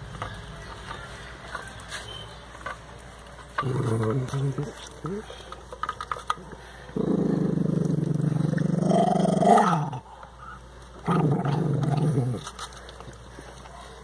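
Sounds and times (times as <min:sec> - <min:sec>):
dog growling: 0:03.6 - 0:04.8, 0:06.9 - 0:10.1, 0:11.0 - 0:12.5.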